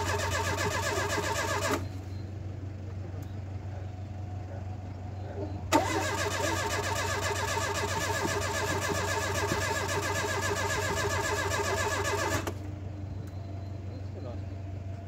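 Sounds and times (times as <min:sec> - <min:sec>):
starter motor cranking engine: 0:00.0 - 0:02.0, 0:05.7 - 0:12.7.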